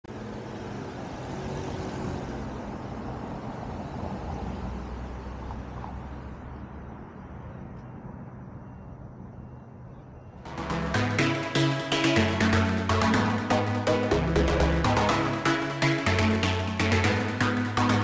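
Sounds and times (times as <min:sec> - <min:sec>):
motor vehicle rumble: 0:00.1 - 0:11.1.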